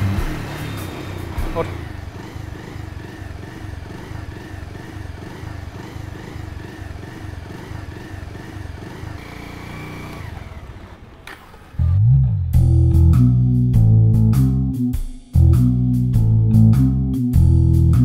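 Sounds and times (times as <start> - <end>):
motorcycle engine running: 0.0 - 12.8.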